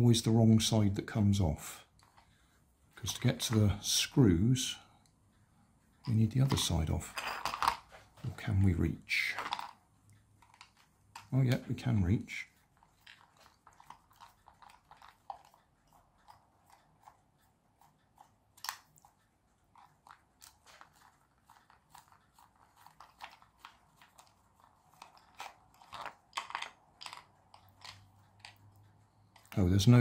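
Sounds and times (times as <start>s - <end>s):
plastic parts clicking and creaking: 6.0s - 12.1s, 19.7s - 30.0s.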